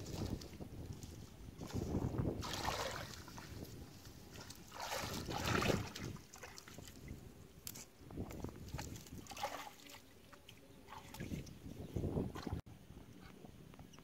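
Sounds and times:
hands splashing shallow water: 0:02.4 - 0:03.6, 0:04.3 - 0:07.8, 0:08.6 - 0:10.1.

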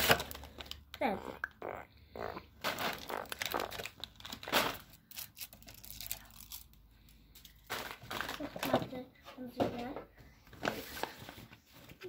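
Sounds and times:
plastic wrappers crinkling: 0:00.0 - 0:01.0, 0:02.6 - 0:09.0.

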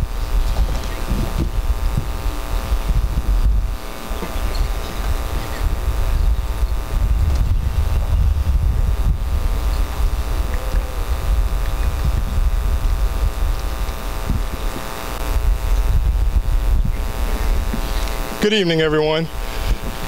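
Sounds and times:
low rumble on microphone: 0:00.0 - 0:18.4
steady electrical hum: 0:00.0 - 0:20.0.

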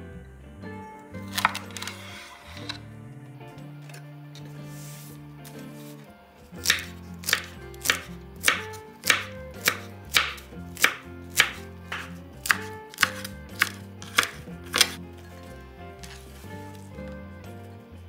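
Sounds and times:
knife chopping on wooden board: 0:06.6 - 0:15.0.

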